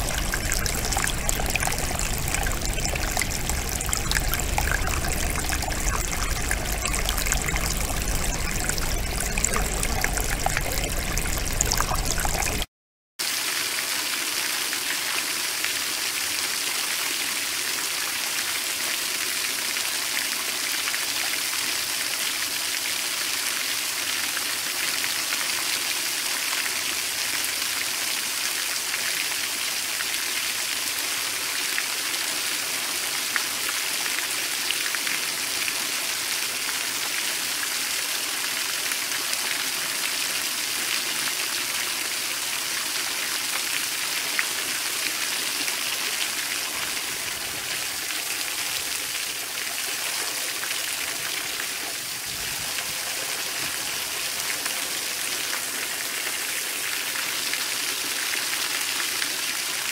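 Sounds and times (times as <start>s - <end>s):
water drops ticking: 0.0s - 12.7s.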